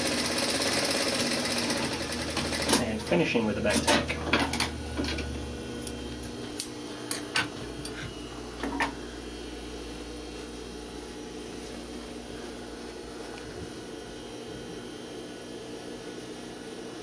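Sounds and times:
sewing machine motor humming: 0.0 - 3.8.

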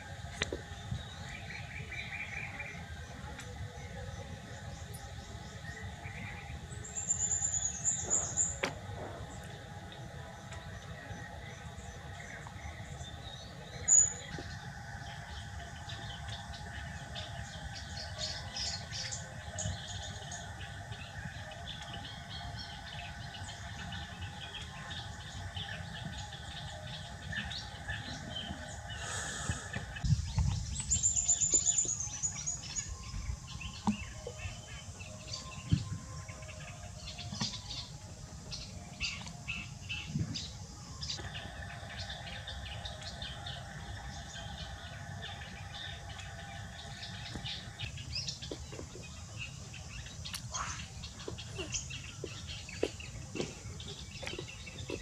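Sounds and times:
birds chirping: 0.0 - 55.0.

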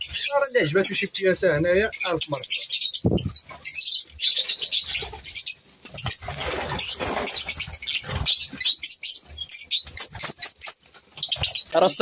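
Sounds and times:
birds chirping shrilly: 0.0 - 12.0
wingbeats flurry: 3.2 - 12.0.

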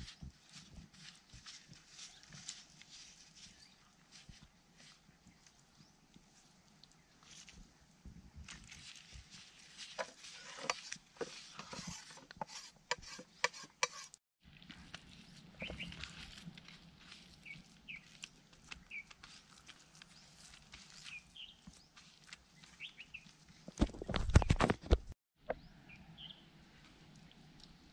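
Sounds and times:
birds chirping: 15.6 - 16.0, 17.4 - 19.2, 21.0 - 23.7
fingers mixing paste crackling: 15.9 - 21.2.

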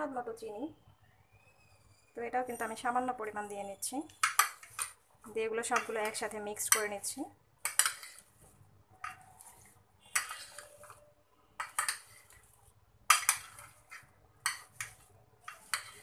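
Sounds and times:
metal spoons scraping glass dish: 5.7 - 8.3, 9.0 - 11.0, 11.6 - 12.4, 13.1 - 16.0.

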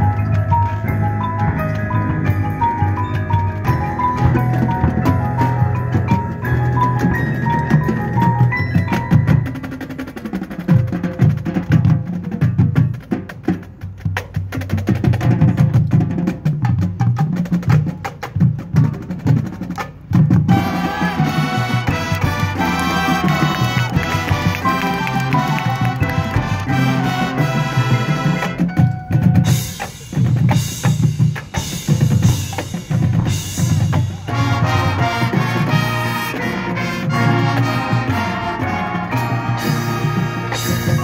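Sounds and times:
mallet melody: 0.0 - 10.0, 20.5 - 41.0
drums and percussion: 0.0 - 41.0.

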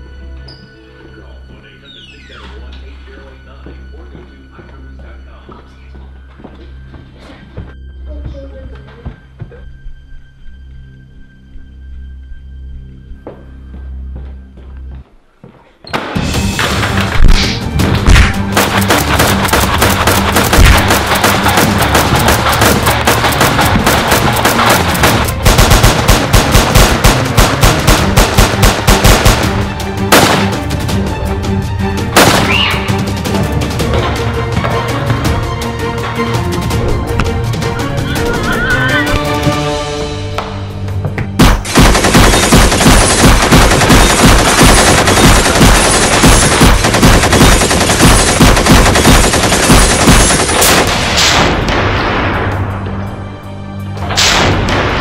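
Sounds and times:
action music with steady beat: 16.0 - 55.0
rapid machine-gun fire: 18.1 - 30.6, 41.4 - 51.7
rapid automatic gunfire: 18.5 - 30.5, 41.4 - 51.0.

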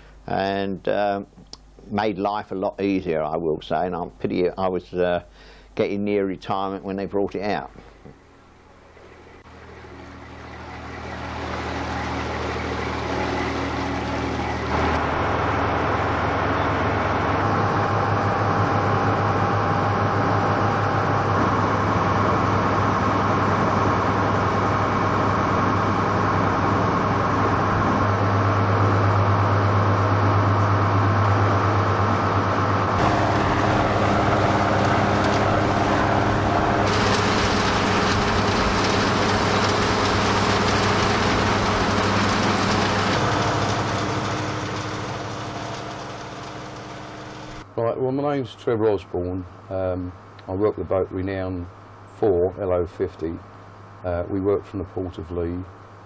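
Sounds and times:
boat engine running: 7.1 - 47.7
water rushing around hull: 8.7 - 47.7.

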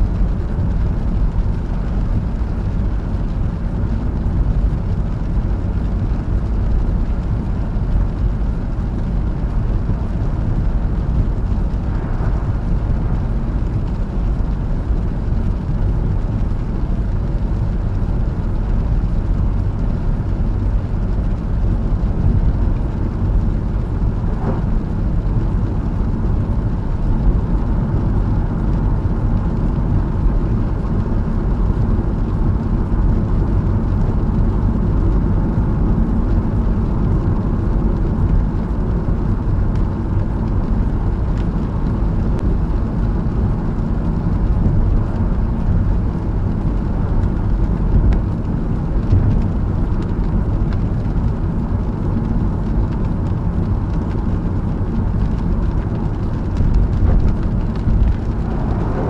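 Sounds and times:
car engine: 6.7 - 30.8, 53.5 - 59.0.

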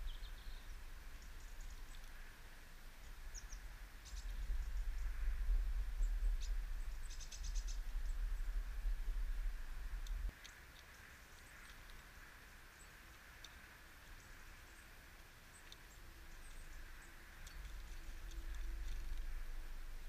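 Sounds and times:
songbirds chirping: 0.0 - 20.0
loud low rumble: 4.4 - 10.3.

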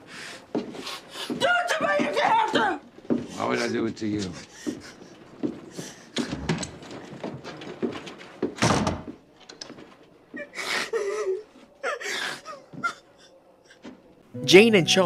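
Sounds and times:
movement on wooden boards: 0.4 - 11.9.

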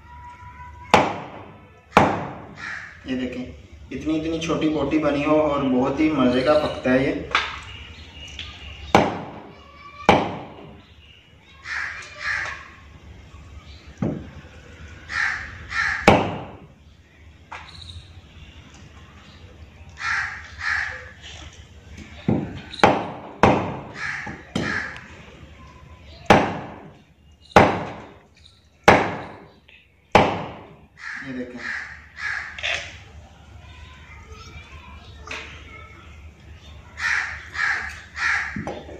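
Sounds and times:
bird cawing: 1.9 - 3.1, 11.4 - 13.0, 14.8 - 16.2, 19.9 - 21.3, 23.7 - 25.7, 30.9 - 33.1, 36.9 - 38.9
cleaver chopping bones: 16.0 - 16.6, 22.3 - 25.0, 27.6 - 28.1, 28.9 - 29.4.

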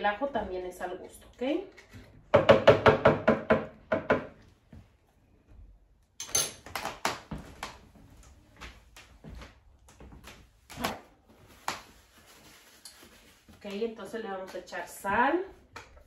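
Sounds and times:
kitchen knocks and thuds: 2.3 - 4.4.

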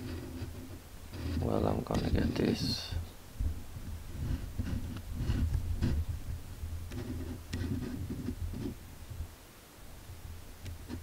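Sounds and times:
camera handling rumble: 6.8 - 8.8.

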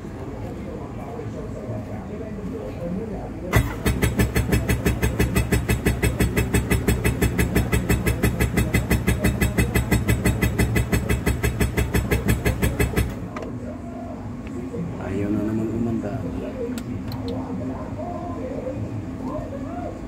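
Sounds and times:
boat engine starter cranking: 3.5 - 8.6.

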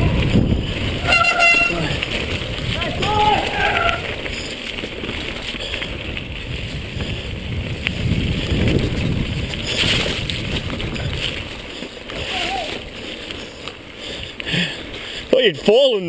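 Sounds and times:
bike tyres rumbling over stones: 0.0 - 16.0.

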